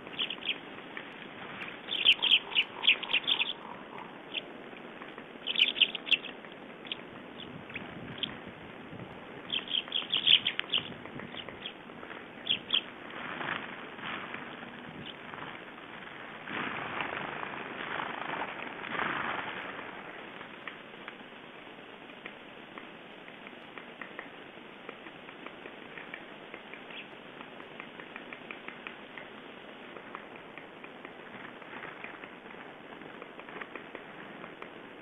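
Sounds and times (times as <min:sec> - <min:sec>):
faint high ticks and chirps: 0:00.1 - 0:08.4, 0:09.4 - 0:11.8, 0:12.4 - 0:12.9, 0:20.6 - 0:32.4.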